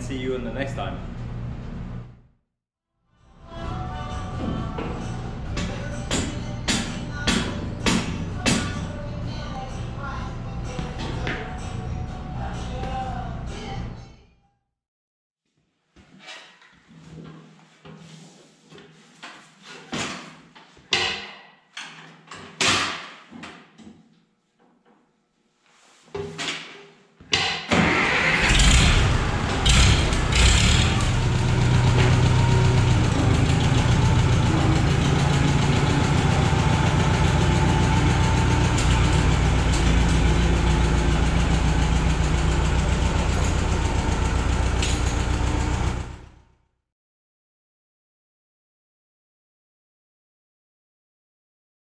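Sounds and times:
tractor engine running: 27.8 - 46.4.

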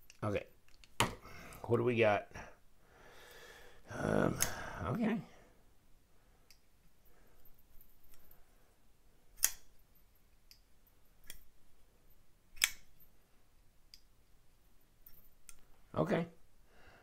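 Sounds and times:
folding knife blade clicking: 12.6 - 12.9.

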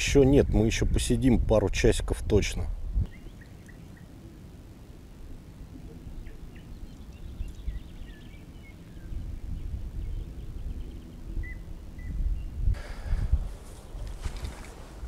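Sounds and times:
birds chirping: 3.0 - 15.0.

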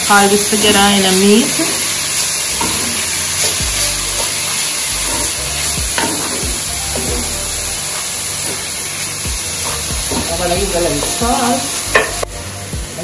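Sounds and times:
meat and vegetables sizzling in a skillet: 0.0 - 13.0.

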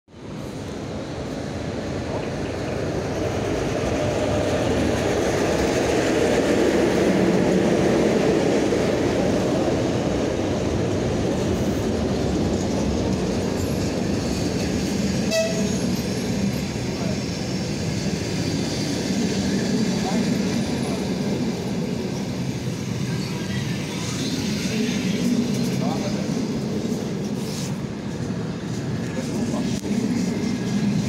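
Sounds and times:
train rumbling past: 0.1 - 31.0.

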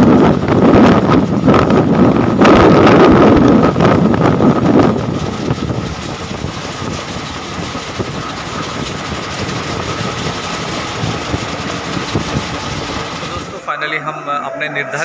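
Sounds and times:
wheels clicking over track joints: 0.0 - 13.6
train wheels running on rails: 0.0 - 13.8.

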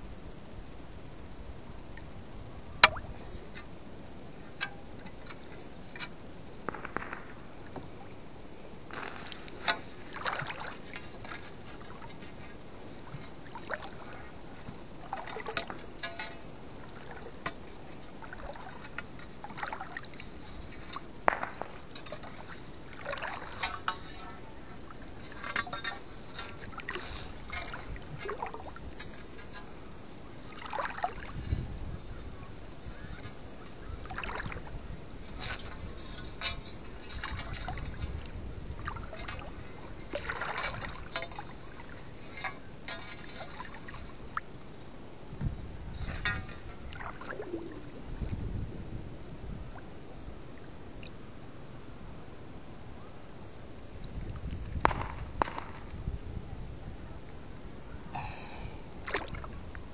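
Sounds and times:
shallow water splashing: 2.7 - 3.7, 4.3 - 44.9, 45.8 - 48.6, 58.2 - 59.9.

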